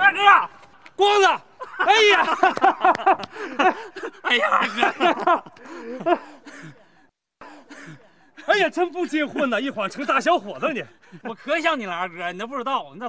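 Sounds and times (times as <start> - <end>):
excited voices calling out: 0.0 - 2.5
people laughing: 1.5 - 6.4.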